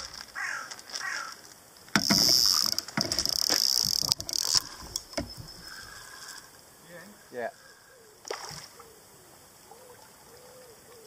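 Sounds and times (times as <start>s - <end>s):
fishing reel buzzing with clicks: 2.0s - 5.4s.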